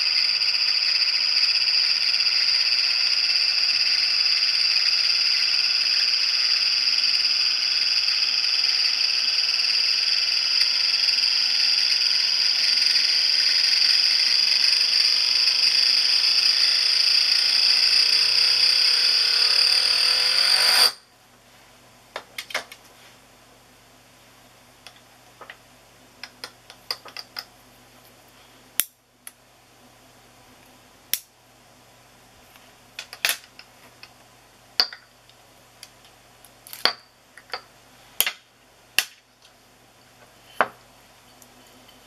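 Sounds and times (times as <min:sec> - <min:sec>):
spinning disc ringing whir: 0:00.0 - 0:21.0.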